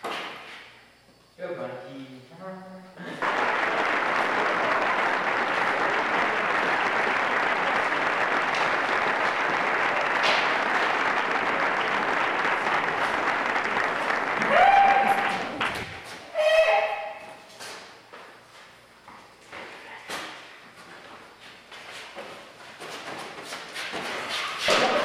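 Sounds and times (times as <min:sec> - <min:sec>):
applause: 0:03.0 - 0:16.0.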